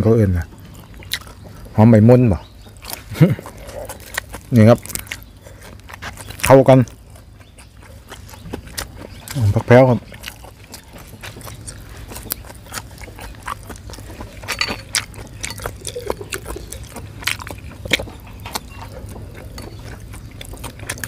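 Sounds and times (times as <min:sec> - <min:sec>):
low steady hum: 0:00.0 - 0:21.0
person slurping and chewing: 0:10.1 - 0:21.0.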